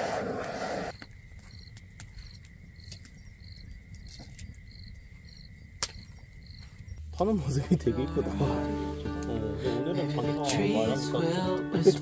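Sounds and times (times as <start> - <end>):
crickets chirping: 0.0 - 12.0
high insect trill: 0.0 - 12.0
background music: 7.6 - 12.0.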